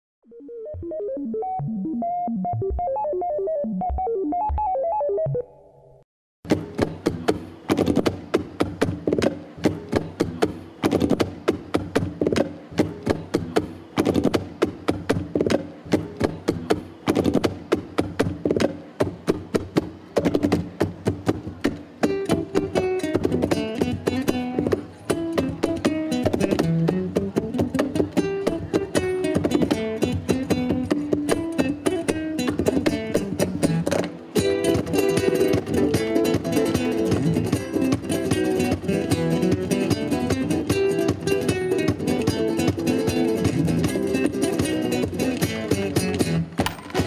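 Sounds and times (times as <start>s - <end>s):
music with quick percussive beat: 6.5s - 47.0s.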